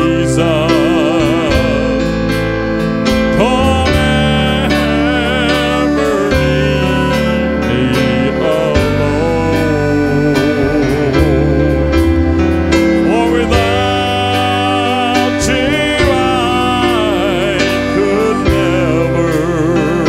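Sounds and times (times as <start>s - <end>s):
drum kit: 0.0s - 20.0s
piano: 0.0s - 20.0s
wavering lead melody: 0.0s - 20.0s.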